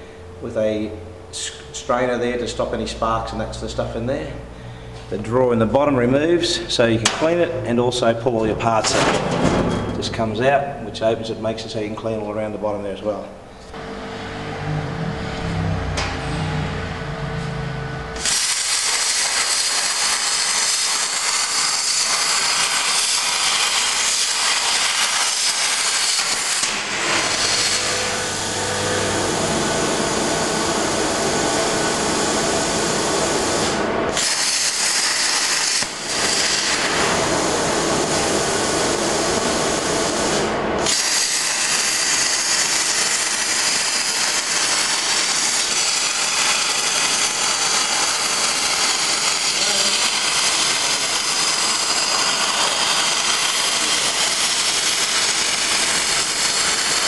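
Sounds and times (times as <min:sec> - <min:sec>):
machine hum: 0:00.0 - 0:57.0
plasma cutter hissing: 0:18.2 - 0:57.0.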